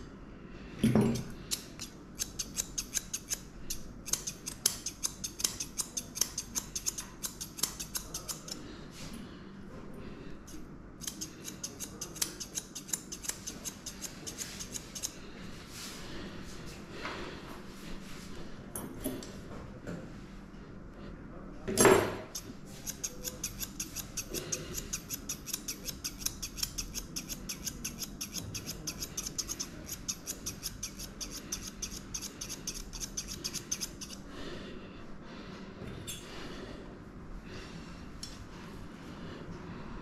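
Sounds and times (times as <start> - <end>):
scissors snipping hair: 1.1 - 8.6, 10.5 - 15.2, 22.3 - 34.2.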